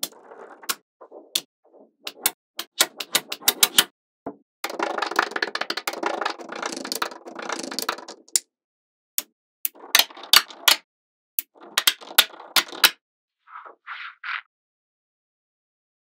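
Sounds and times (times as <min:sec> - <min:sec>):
magnetic balls clicking: 0:02.1 - 0:03.9, 0:09.7 - 0:10.8, 0:11.4 - 0:13.0.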